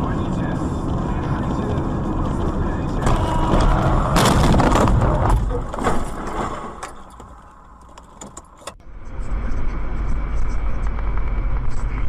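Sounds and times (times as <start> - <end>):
car driving on highway rumble: 0.0 - 12.0
knocks and rattles in car: 0.8 - 6.2.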